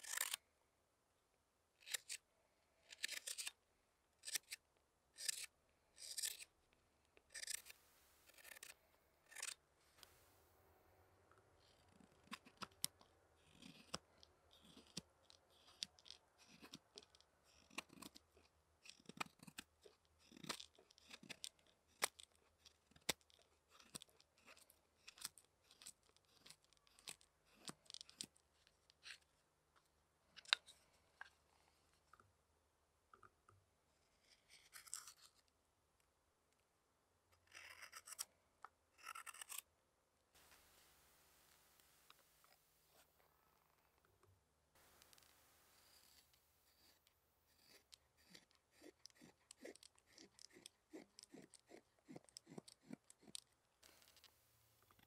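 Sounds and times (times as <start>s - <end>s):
knife cutting wood: 0.0s - 0.4s, 5.2s - 6.5s, 7.3s - 10.4s, 12.1s - 14.0s, 37.4s - 38.3s, 39.0s - 39.6s, 44.8s - 54.3s
knife scraping wood: 0.0s - 0.4s, 5.2s - 6.5s, 7.3s - 10.3s, 13.4s - 16.8s, 34.2s - 35.4s, 37.4s - 38.3s, 39.0s - 39.6s, 44.8s - 54.3s.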